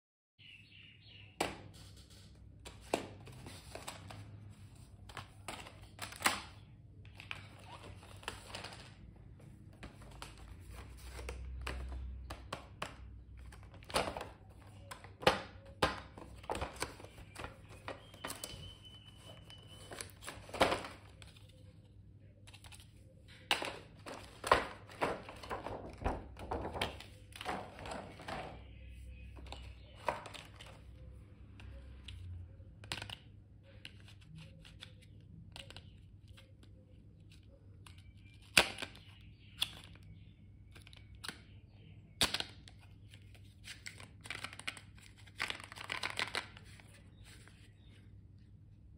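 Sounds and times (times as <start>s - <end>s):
cardboard and plastic taps and clicks: 11.2s - 18.6s.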